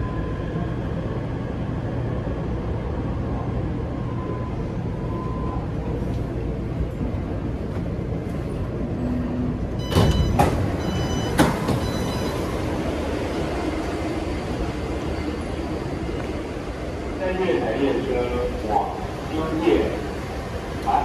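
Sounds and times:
train car low rumble: 0.0 - 21.0
train doors sliding open: 6.0 - 16.8.

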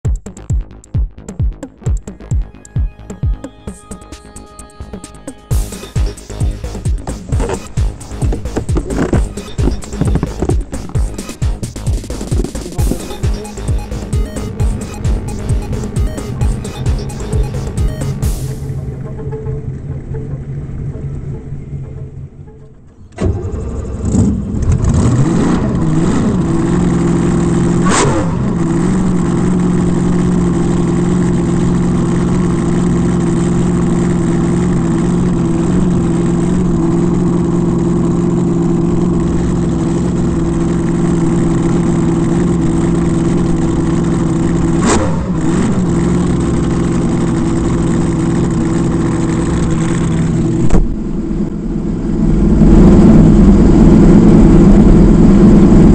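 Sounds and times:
sharp engine blips: 5.3 - 24.0
boat engine revving and idling: 5.5 - 55.9.

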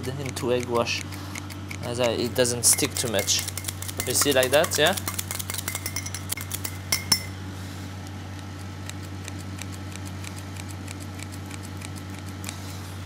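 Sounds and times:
scissors clinking against bowl: 1.6 - 7.4.

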